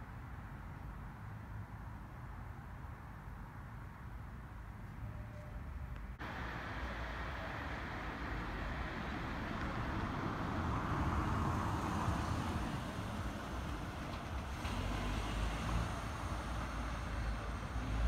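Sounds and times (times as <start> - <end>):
city street traffic: 0.0 - 18.0
passing road vehicle: 5.0 - 18.0.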